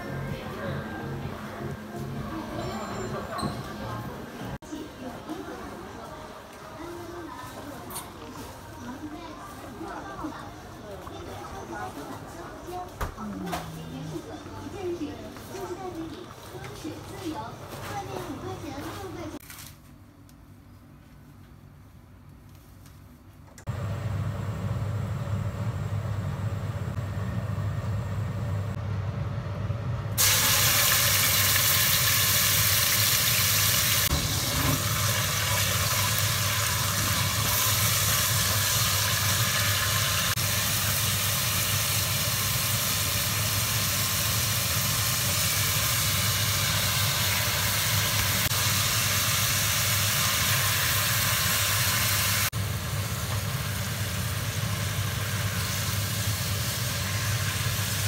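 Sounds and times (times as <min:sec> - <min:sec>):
steady low hum: 0:23.6 - 0:30.2
meat frying in hot oil: 0:30.2 - 0:58.0.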